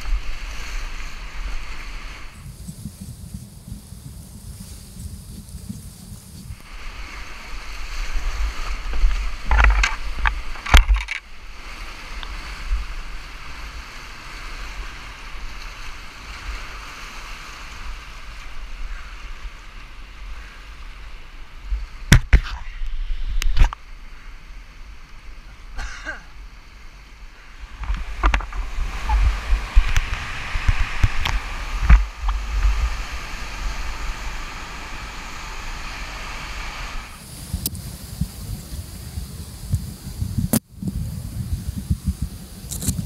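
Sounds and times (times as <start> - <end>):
rushing whitewater: 6.6 - 22.1, 23.8 - 37.3.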